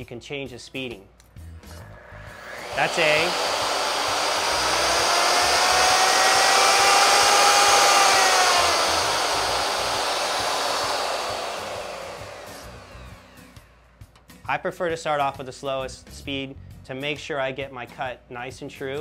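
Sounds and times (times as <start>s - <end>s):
router motor whine: 1.6s - 13.8s.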